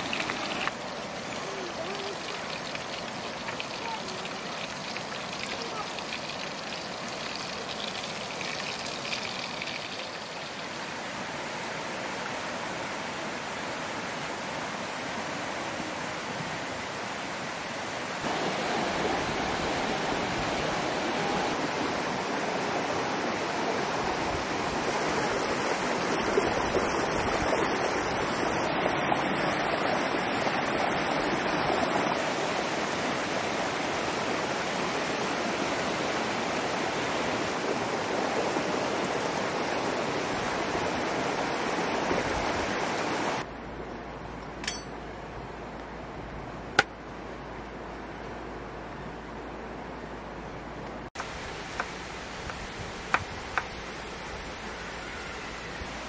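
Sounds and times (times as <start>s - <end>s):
river water rushing: 0.0s - 43.5s.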